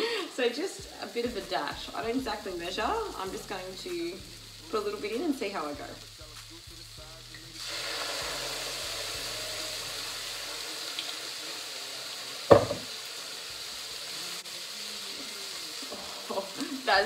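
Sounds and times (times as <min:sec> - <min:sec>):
wine sizzling in hot pan: 0:00.0 - 0:17.0
glass bottle set down clunk: 0:12.5 - 0:12.9.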